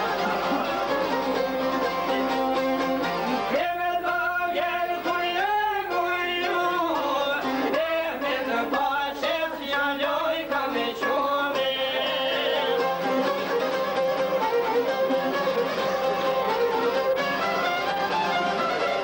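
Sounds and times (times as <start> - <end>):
plucked long-necked lute: 0.0 - 19.0
man singing held notes: 7.7 - 12.8.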